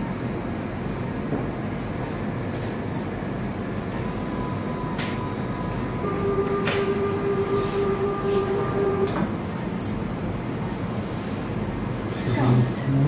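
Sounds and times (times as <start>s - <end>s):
held electronic tone: 4.0s - 9.3s
rushing machine noise: 4.0s - 11.0s.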